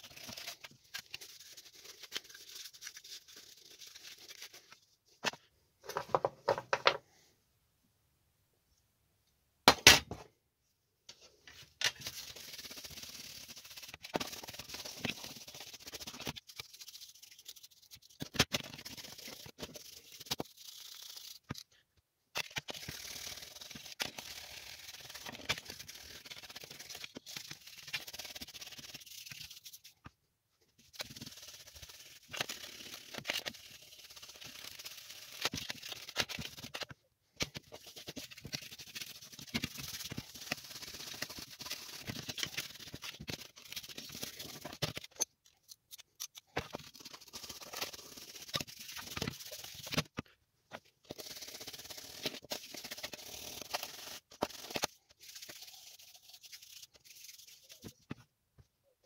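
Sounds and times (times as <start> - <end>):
scratchy brushing by hand: 0.0 - 4.8, 12.0 - 21.5, 22.6 - 30.0, 30.8 - 36.8, 37.6 - 44.8, 46.8 - 50.0, 51.1 - 58.0.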